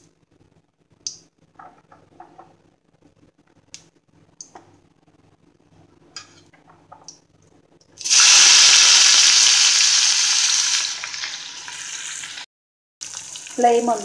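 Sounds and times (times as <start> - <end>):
onion sizzling in hot oil: 8.0 - 12.4, 13.0 - 14.0.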